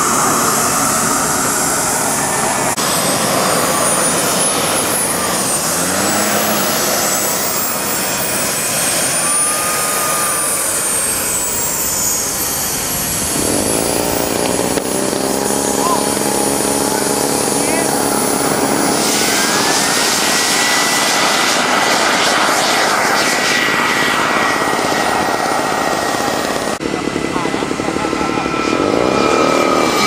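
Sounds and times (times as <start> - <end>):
model jet engine whine: 0.0 - 30.0.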